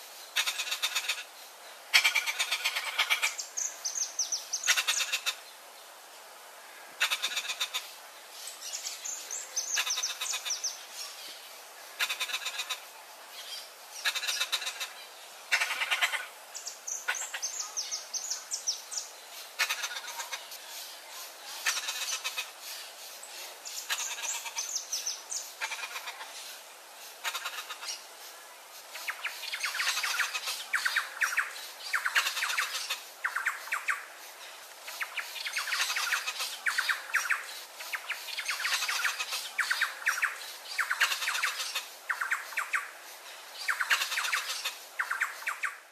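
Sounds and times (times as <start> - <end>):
parrots harsh raspy calls: 0.4 - 1.3, 1.9 - 3.5, 4.6 - 5.4, 7.0 - 8.0, 9.7 - 10.7, 12.0 - 12.9, 14.0 - 16.4, 17.0 - 17.6, 19.6 - 20.6, 21.5 - 22.9, 23.8 - 26.5, 27.2 - 28.0, 28.9 - 34.0, 34.9 - 42.9, 43.6 - 45.8.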